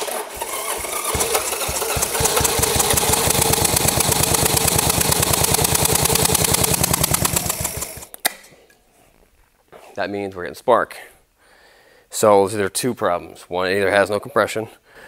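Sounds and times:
motorcycle engine turning over: 0:00.0 - 0:08.2.

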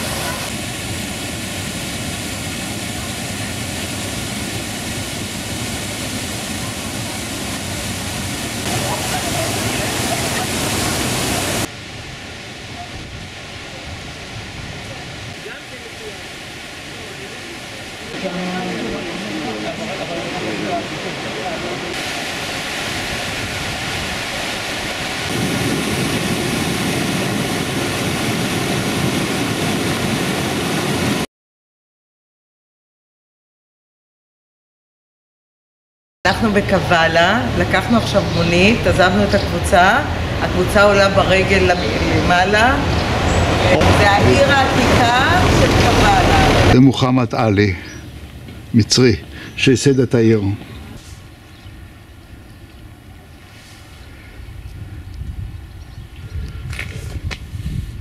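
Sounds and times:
waterfall rushing: 0:00.0 - 0:31.3, 0:36.3 - 0:54.3.

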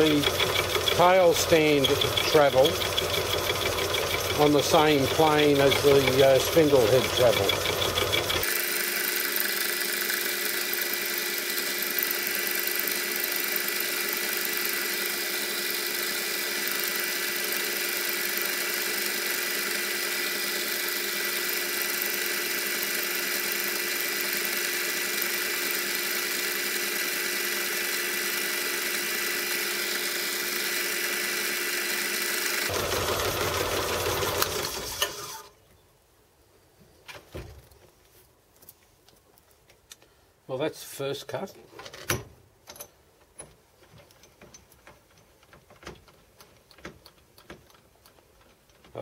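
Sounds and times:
cutter cutting aluminium: 0:00.0 - 0:35.5
metal lathe whining: 0:00.0 - 0:35.5.

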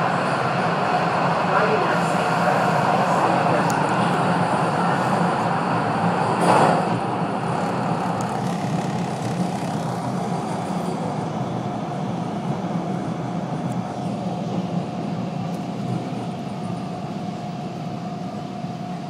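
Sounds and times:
subway train rumbling on rails: 0:00.0 - 0:19.0
train motor hum: 0:01.7 - 0:11.1.

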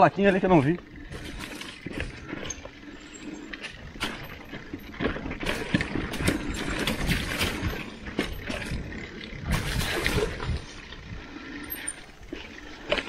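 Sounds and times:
bike tyres rolling on dirt: 0:00.0 - 0:13.0
bike knocks and clicks: 0:03.8 - 0:10.8.

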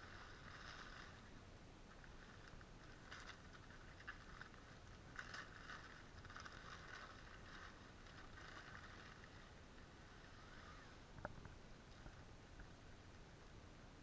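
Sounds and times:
newspaper rustling and crinkling: 0:00.0 - 0:10.3.

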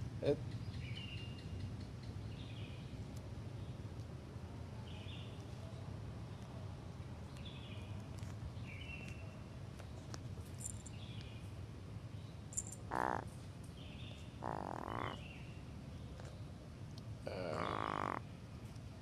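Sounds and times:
crow croaking: 0:12.9 - 0:13.3, 0:14.4 - 0:15.3, 0:17.2 - 0:18.3.

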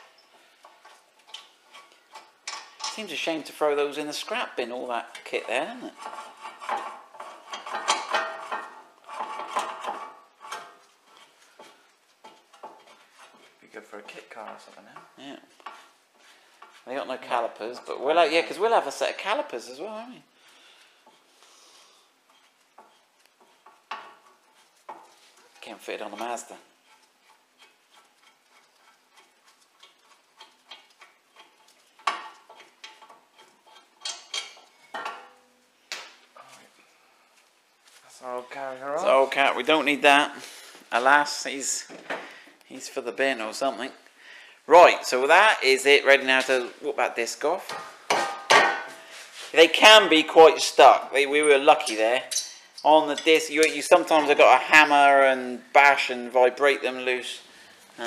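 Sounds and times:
steel brake parts clinking: 0:30.7 - 0:35.5, 0:51.8 - 0:53.8.

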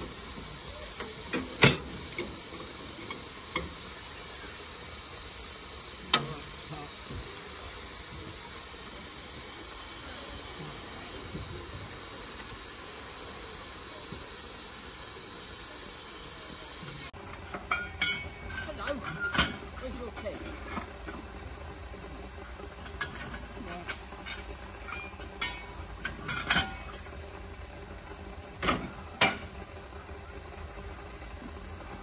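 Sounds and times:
steam locomotive hissing: 0:00.0 - 0:32.0.

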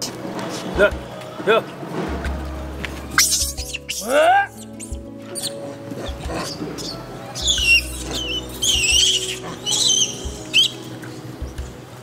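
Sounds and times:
faint background music: 0:00.0 - 0:12.0
monkeys squealing: 0:03.2 - 0:11.2.

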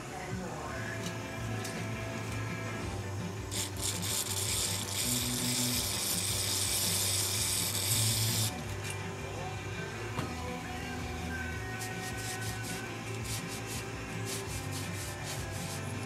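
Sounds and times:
aerosol can spraying hiss: 0:03.5 - 0:08.5, 0:11.8 - 0:16.0.

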